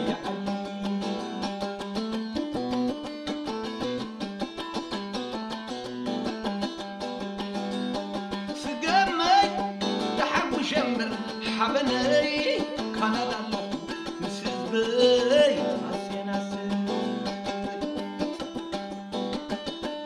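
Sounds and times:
man singing: 0:00.0 - 0:01.5, 0:08.5 - 0:18.7
plucked guitar over fast beat: 0:00.0 - 0:20.0.

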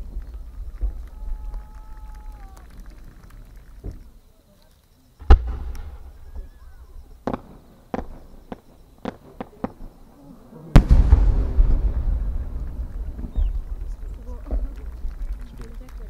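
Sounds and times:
scattered firework pops: 0:00.0 - 0:10.1, 0:10.7 - 0:16.0
firework shell burst: 0:05.2 - 0:09.8
firework mortar launch bang: 0:05.2 - 0:09.9, 0:10.8 - 0:15.2
low rolling rumble: 0:10.8 - 0:16.0.

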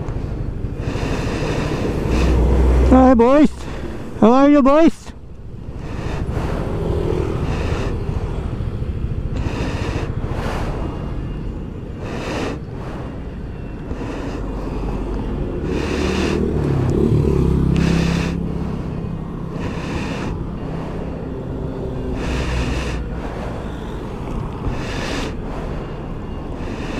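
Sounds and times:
wind and road noise: 0:00.0 - 0:26.9
scooter engine running: 0:05.2 - 0:14.5, 0:15.1 - 0:25.0.

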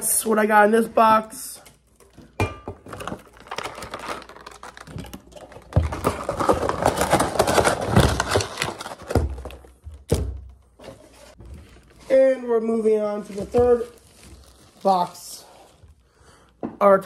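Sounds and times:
packaging rustling and clicking: 0:01.8 - 0:10.1.

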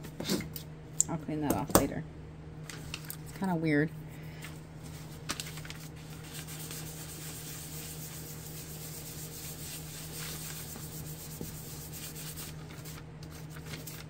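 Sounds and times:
tissue rubbing on paper: 0:04.8 - 0:14.0.

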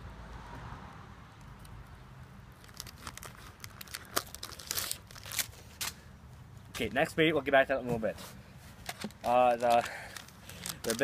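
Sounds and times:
plastic bag crinkling: 0:02.6 - 0:05.6, 0:08.8 - 0:11.0.

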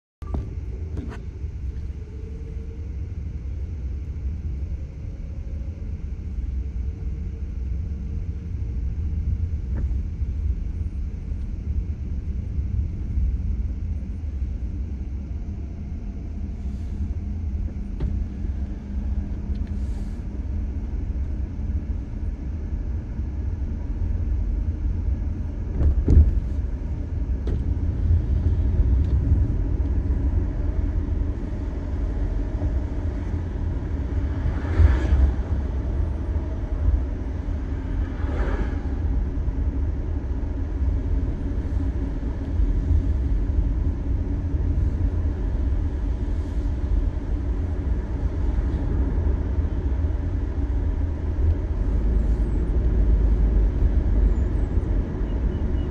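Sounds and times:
tyre and engine rumble: 0:25.1 - 0:55.9
short thump: 0:25.7 - 0:26.5.

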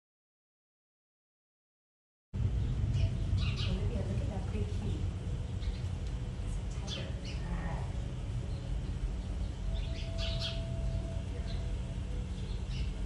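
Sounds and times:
steady low rumble: 0:02.4 - 0:13.0
high bird chirps: 0:02.6 - 0:03.9, 0:08.5 - 0:11.7, 0:12.3 - 0:13.0.

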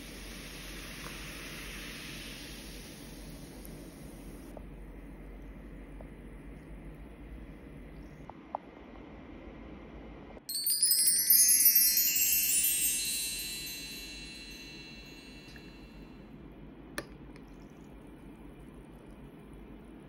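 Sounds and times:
sparkly bell-like chime cascade: 0:10.5 - 0:16.1.

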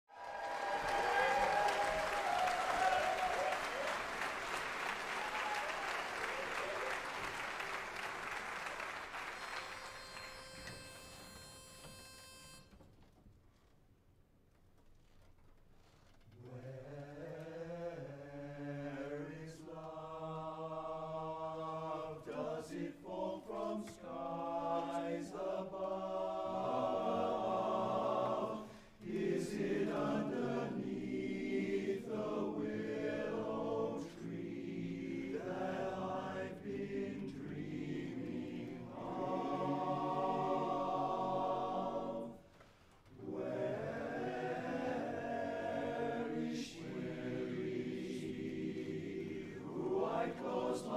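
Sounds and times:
male chorus singing in harmony: 0:16.5 - 0:42.5, 0:43.1 - 0:50.9.

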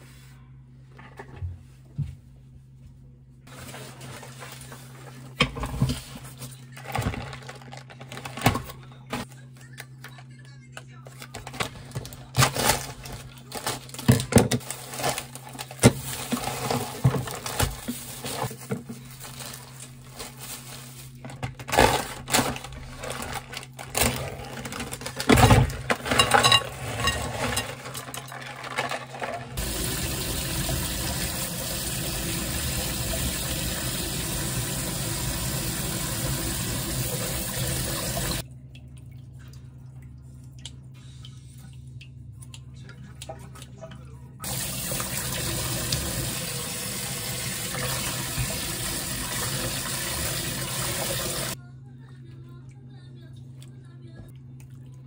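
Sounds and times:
kitchen items clicking and knocking: 0:24.4 - 0:29.6
kitchen tap running: 0:29.6 - 0:38.4, 0:44.4 - 0:51.6.

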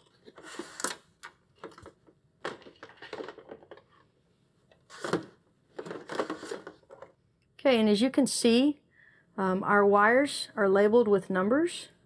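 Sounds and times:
cable rustling and scraping: 0:00.0 - 0:04.1, 0:04.7 - 0:07.2.

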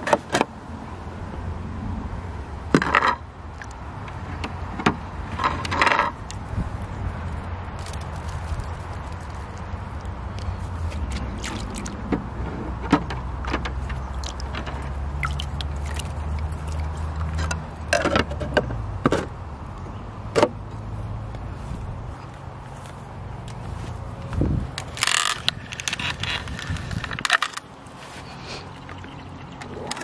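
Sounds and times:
handling clicks and knocks: 0:07.8 - 0:19.4, 0:24.2 - 0:27.8
pool pump humming: 0:13.7 - 0:17.9.

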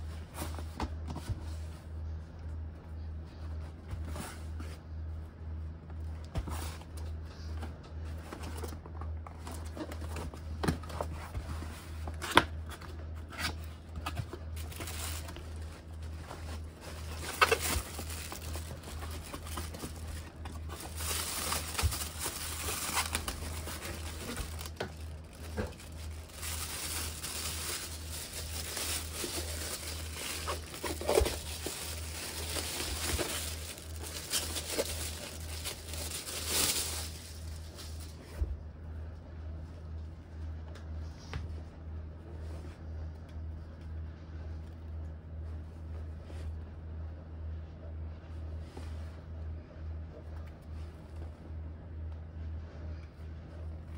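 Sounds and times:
steady low hum: 0:00.0 - 0:53.9
plastic bag crinkling: 0:13.5 - 0:38.2.

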